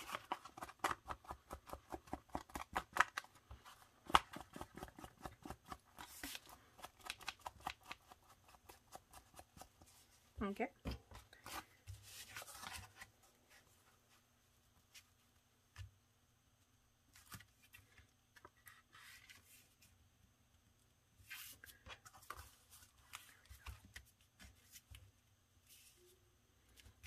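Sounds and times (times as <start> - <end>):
paper envelopes rustling: 11.3 - 13.2.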